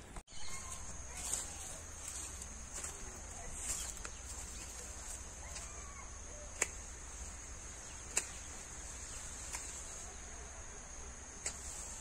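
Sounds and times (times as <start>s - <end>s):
insects droning: 0.0s - 12.0s
faint bird chirps: 0.3s - 6.6s.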